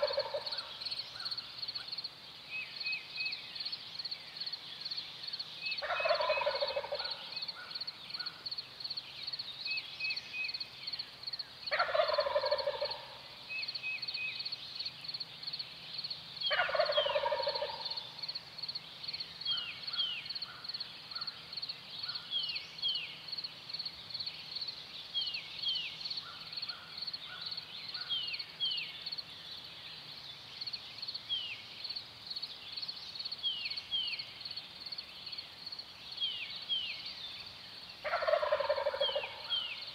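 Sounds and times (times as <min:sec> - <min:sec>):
turkey gobbling: 0:00.0 - 0:00.6, 0:05.8 - 0:07.2, 0:11.7 - 0:13.2, 0:16.5 - 0:17.9, 0:38.0 - 0:39.6
small birds chirping: 0:00.0 - 0:39.9.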